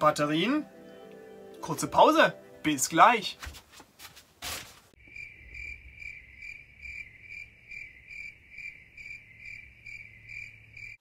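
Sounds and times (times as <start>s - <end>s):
cricket chirping: 5.0s - 11.0s.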